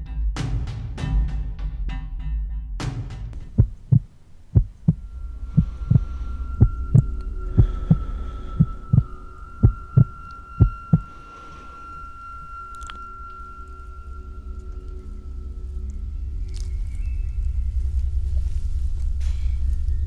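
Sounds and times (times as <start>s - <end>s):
heartbeat thumps: 3.4s - 11.1s
steady high tone: 4.7s - 15.8s.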